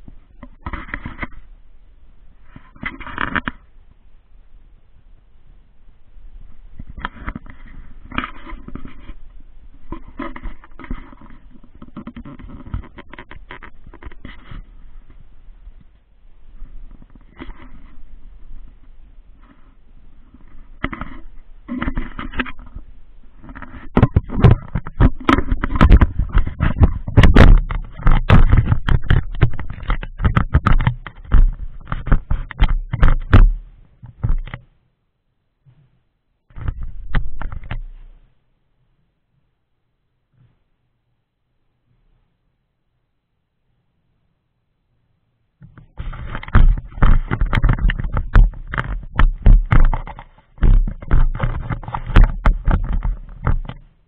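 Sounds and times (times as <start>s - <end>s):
handling noise on microphone: 0.0s - 34.8s, 35.6s - 38.4s, 40.3s - 40.8s, 45.6s - 54.0s
hands handling plastic mount: 45.6s - 53.8s.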